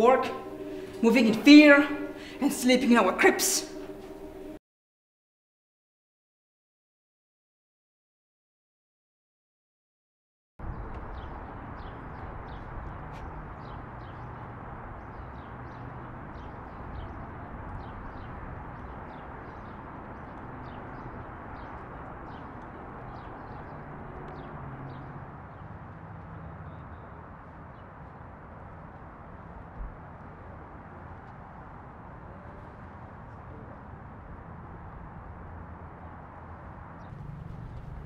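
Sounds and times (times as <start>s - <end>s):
low hum: 0.0s - 4.6s, 37.0s - 38.0s
steady background hiss: 0.0s - 4.6s
small birds chirping: 10.7s - 25.7s.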